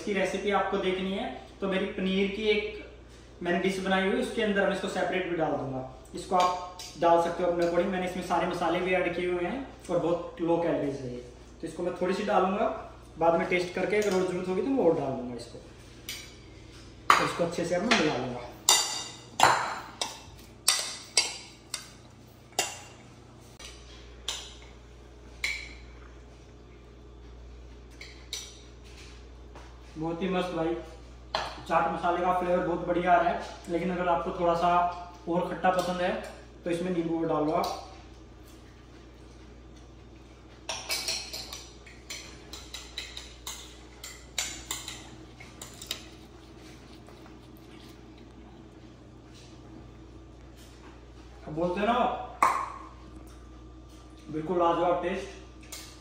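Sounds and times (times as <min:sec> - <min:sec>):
fork clinking in ceramic bowl: 0:40.7 - 0:46.2.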